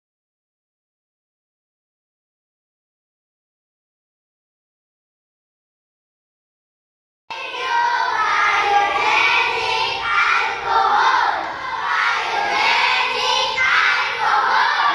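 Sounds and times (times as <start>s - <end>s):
children shouting in unison: 7.3s - 14.9s.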